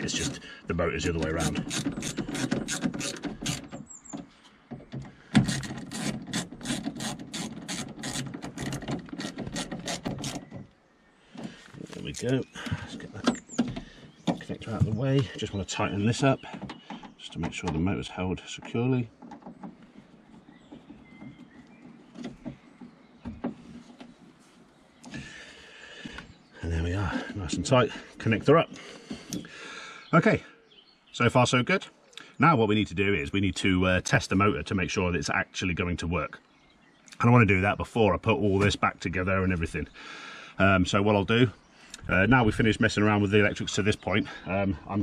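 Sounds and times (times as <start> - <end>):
hand ratchet rasping: 1.1 - 3.9, 5.3 - 10.5.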